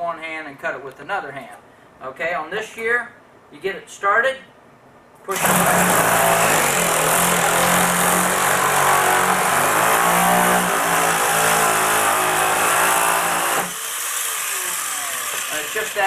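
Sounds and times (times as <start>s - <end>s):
electric metal shear cutting: 5.3s - 16.0s.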